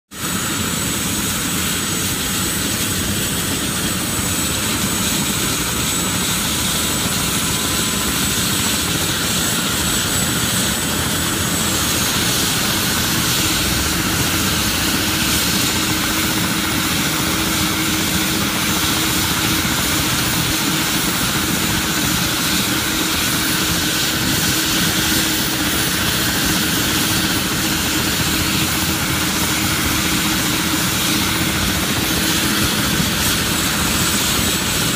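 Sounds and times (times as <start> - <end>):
helicopter rotor noise: 0.1 - 34.9
turbine whine: 0.2 - 34.9.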